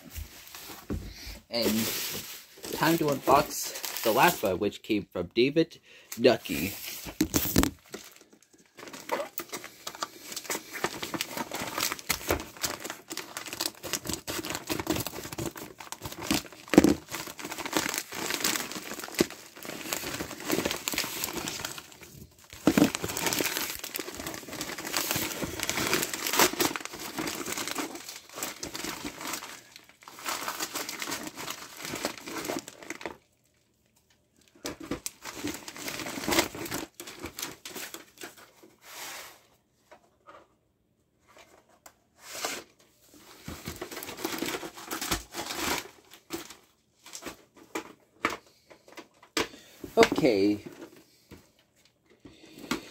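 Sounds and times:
package wrapping crinkling and tearing: 1.6 - 4.5, 6.4 - 33.6, 34.4 - 38.5, 43.2 - 49.0.

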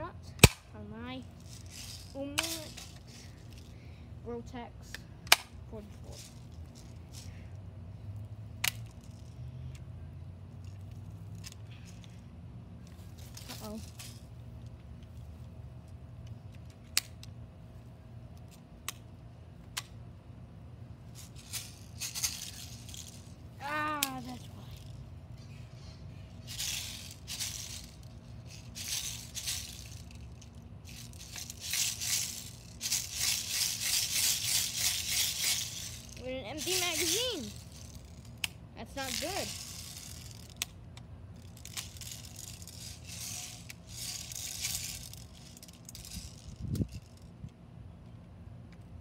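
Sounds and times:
low background rumble: 0.0 - 49.0
steel bbs rattling: 1.3 - 3.7, 6.0 - 7.4, 13.1 - 14.7, 21.1 - 25.1, 25.7 - 40.7, 41.4 - 47.3.

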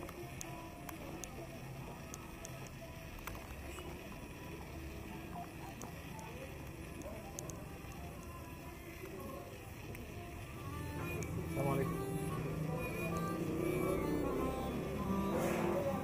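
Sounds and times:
faint voices of passers-by: 0.4 - 16.0
traffic hum: 3.5 - 16.0
sharp clicks: 6.6 - 8.4.

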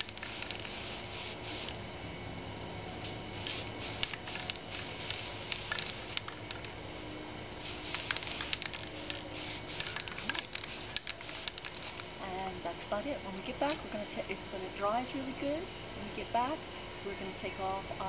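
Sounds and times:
spray paint can hissing: 0.0 - 1.8, 3.4 - 6.7, 7.6 - 12.1.

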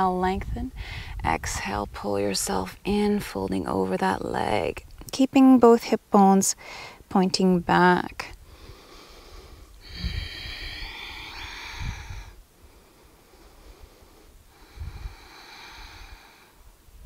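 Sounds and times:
wind rumbling on microphone: 0.0 - 5.1, 8.4 - 17.0
woman breathing: 0.8 - 1.2, 6.6 - 7.0, 8.4 - 16.6.

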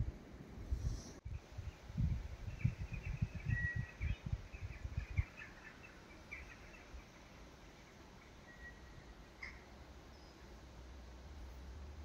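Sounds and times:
small birds chirping: 0.8 - 10.7
bird whistled note: 8.5 - 9.0.

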